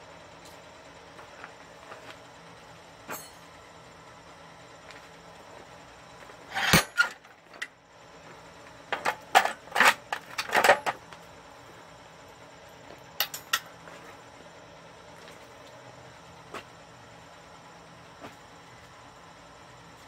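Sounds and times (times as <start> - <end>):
metal clanks and clinks: 3.1 - 3.5, 6.5 - 7.7, 9.0 - 11.0, 13.2 - 13.7.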